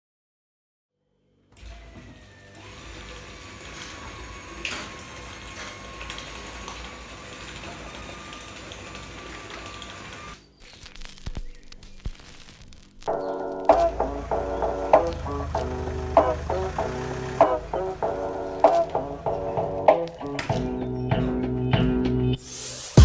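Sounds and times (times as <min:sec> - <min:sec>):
machine running: 0:13.1 - 0:20.7.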